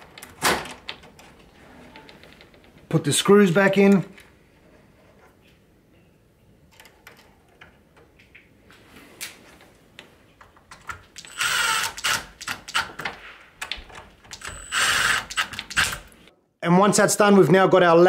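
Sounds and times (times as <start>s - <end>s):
cordless driver driving screws: 11.2s - 13.0s, 14.3s - 16.1s.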